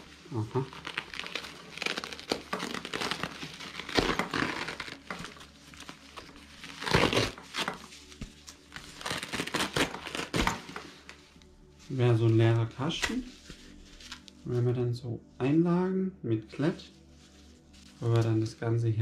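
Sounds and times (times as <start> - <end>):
packaging crinkling and rustling: 0.0 - 11.3.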